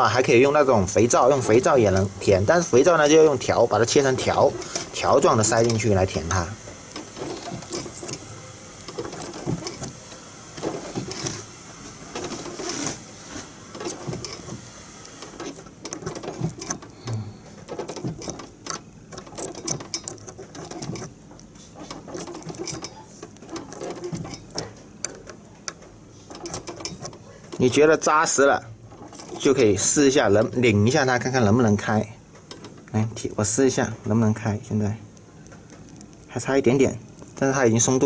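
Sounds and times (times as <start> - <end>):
key scraping against metal cylinder: 2.9 - 10.0, 10.6 - 11.5, 13.7 - 14.6, 15.2 - 28.1, 28.8 - 30.7.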